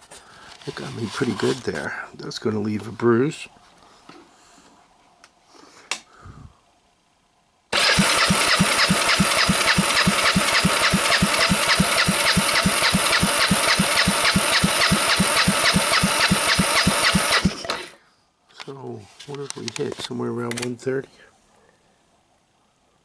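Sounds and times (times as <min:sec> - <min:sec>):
engine cranking by electric starter: 0:07.7 - 0:18.0.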